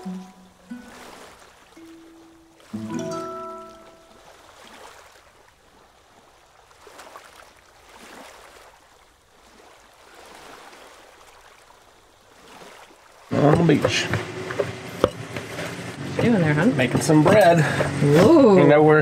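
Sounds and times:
music held notes: 0:00.0 - 0:01.0, 0:01.8 - 0:04.3
water lapping: 0:00.0 - 0:19.0.

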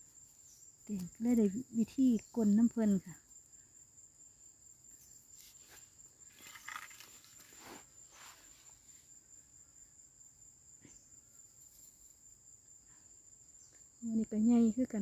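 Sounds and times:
insect trill: 0:00.0 - 0:15.0
hands scooping dry soil: 0:05.3 - 0:08.8.

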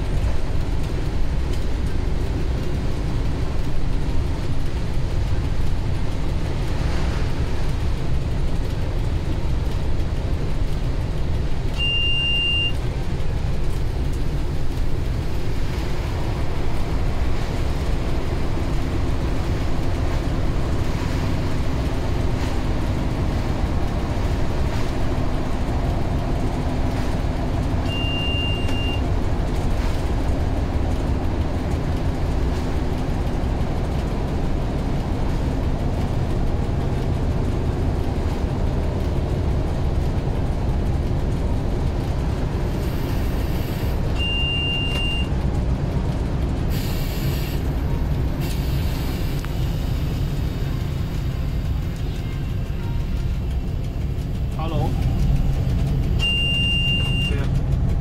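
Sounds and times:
locomotive diesel engine: 0:00.0 - 0:58.0
wheels clattering on rail: 0:00.0 - 0:58.0
short high beep: 0:11.8 - 0:12.8, 0:27.9 - 0:29.0, 0:44.2 - 0:45.3, 0:56.2 - 0:57.4.

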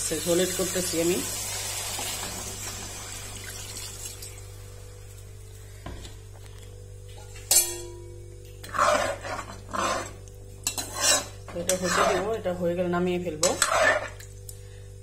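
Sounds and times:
metal spatula scraping a pan: 0:08.6 - 0:12.4, 0:13.4 - 0:14.2.

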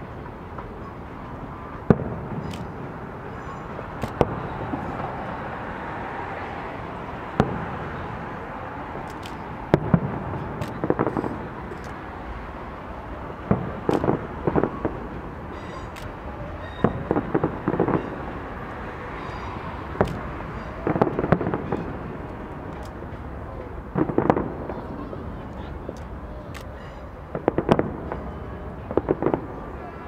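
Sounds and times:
crackling firework reports: 0:00.0 - 0:30.0
steady background noise: 0:00.0 - 0:30.0
firework shells bursting: 0:03.9 - 0:05.1, 0:13.4 - 0:18.2.

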